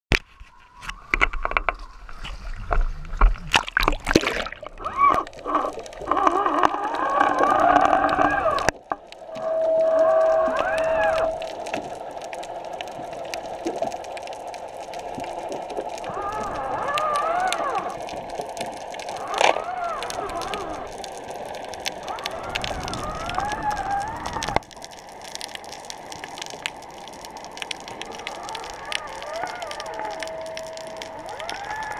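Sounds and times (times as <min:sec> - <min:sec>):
sharp clicks and crackle: 0:00.1 - 0:31.9
underwater hum: 0:00.1 - 0:31.9
splash into water: 0:03.2 - 0:05.2.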